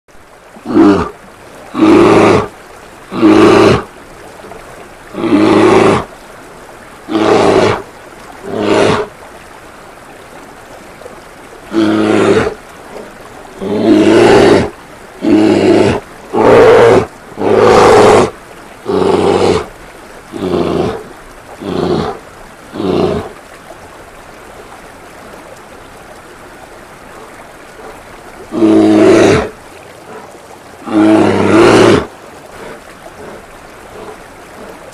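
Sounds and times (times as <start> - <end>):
bear roaring: 0.6 - 2.5, 3.1 - 3.9, 5.1 - 6.1, 7.1 - 7.8, 8.4 - 9.1, 11.7 - 12.6, 13.6 - 19.7, 20.3 - 23.3, 28.5 - 30.2, 30.8 - 34.8.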